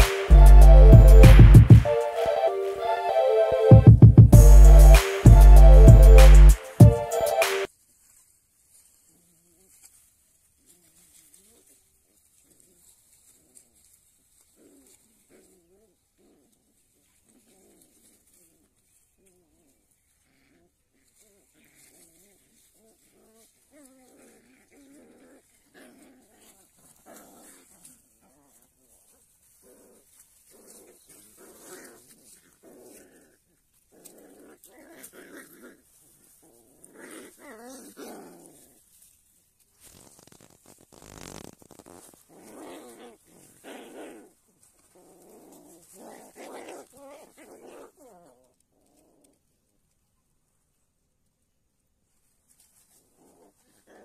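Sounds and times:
puppies growling: 0:19.4 - 0:39.0, 0:42.0 - 0:49.4, 0:53.0 - 0:54.0.

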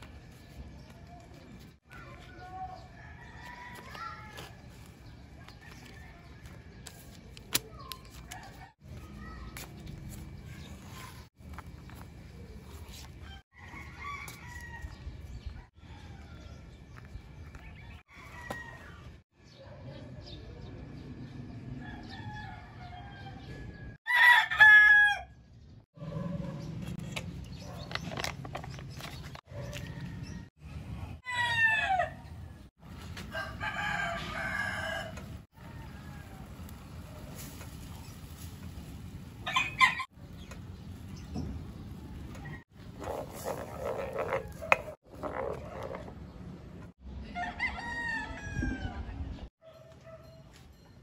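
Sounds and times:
rooster crowing: 0:21.9 - 0:25.4, 0:33.3 - 0:36.5, 0:47.3 - 0:49.0.

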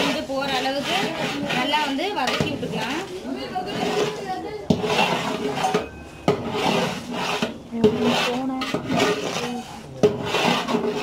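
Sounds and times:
metal ladle scraping pot: 0:00.0 - 0:11.0
paste frying: 0:06.3 - 0:11.0.

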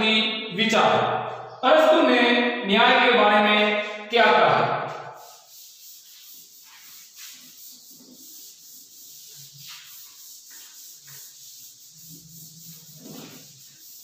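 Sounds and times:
duster wiping chalk off blackboard: 0:04.8 - 0:14.0.

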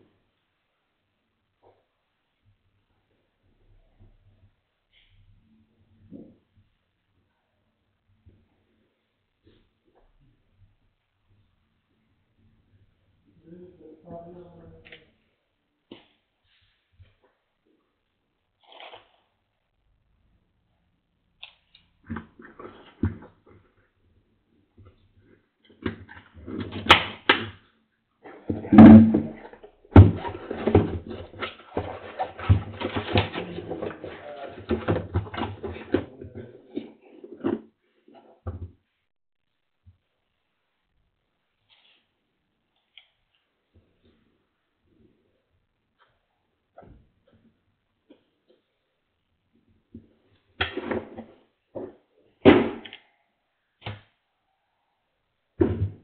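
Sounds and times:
plastic wrap crinkling: 0:18.6 - 0:19.3
objects knocking and thumping: 0:22.0 - 0:23.8, 0:24.8 - 0:27.6, 0:28.2 - 0:38.9, 0:46.7 - 0:47.5, 0:49.8 - 0:53.0, 0:55.6 - 0:56.0
cardboard box rustling: 0:30.0 - 0:36.2.

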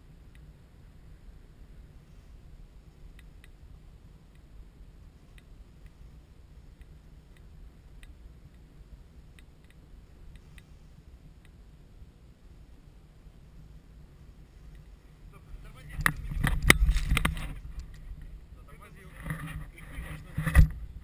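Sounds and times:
faint sharp clicks: 0:05.3 - 0:06.0, 0:09.3 - 0:10.7
wind on microphone: 0:14.3 - 0:21.0.

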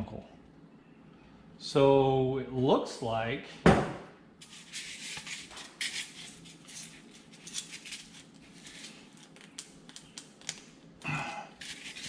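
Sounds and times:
hands scraping and rustling: 0:04.4 - 0:10.6, 0:11.6 - 0:12.0.

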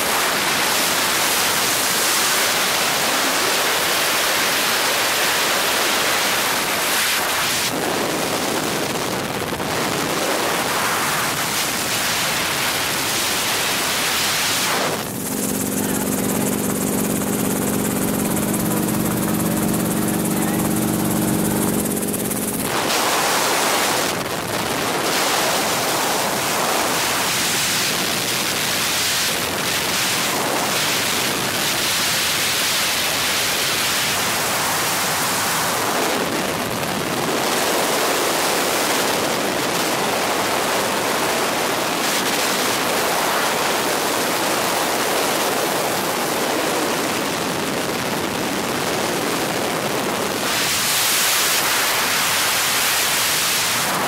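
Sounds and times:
helicopter cabin noise: 0:00.0 - 0:54.0.

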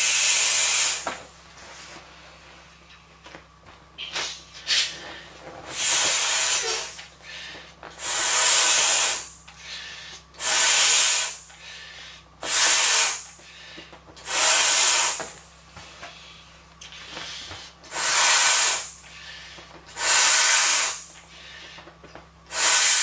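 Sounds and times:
blowing breath into inflatable ball: 0:00.0 - 0:01.1, 0:04.2 - 0:15.3, 0:17.0 - 0:21.8, 0:22.5 - 0:23.0.

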